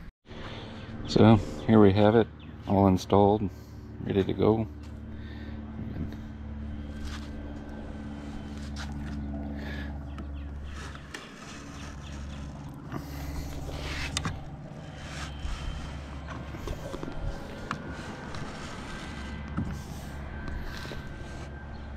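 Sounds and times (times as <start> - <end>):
steady low hum: 0.0 - 21.9
footsteps on concrete: 8.4 - 9.3.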